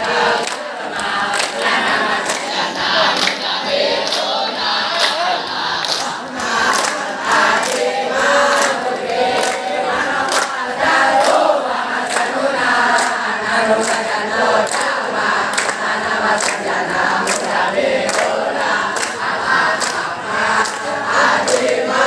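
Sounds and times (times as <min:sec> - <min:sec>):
crowd of boys singing a cheer: 0:00.0 - 0:22.0
rhythmic clapping: 0:00.0 - 0:22.0.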